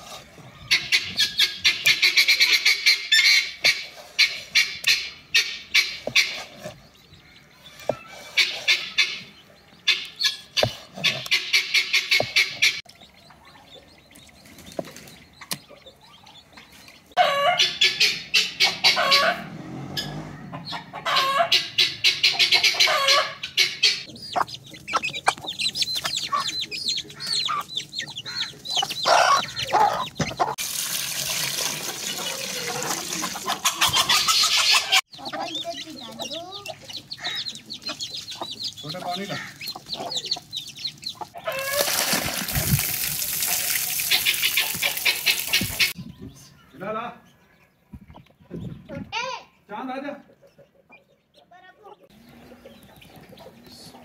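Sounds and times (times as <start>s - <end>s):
chickens clucking and cackling: 0.0s - 30.6s, 31.6s - 42.5s, 43.5s - 54.0s.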